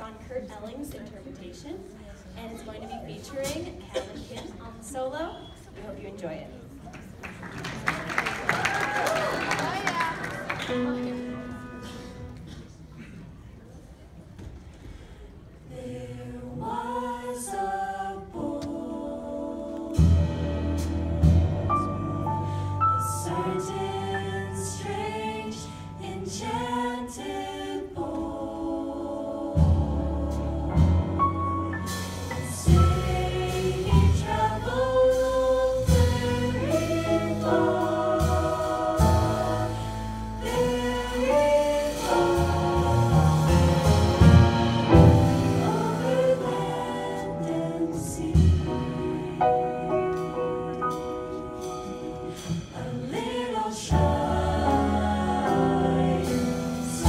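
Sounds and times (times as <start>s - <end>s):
vocal ensemble singing chords: 15.4s - 57.0s.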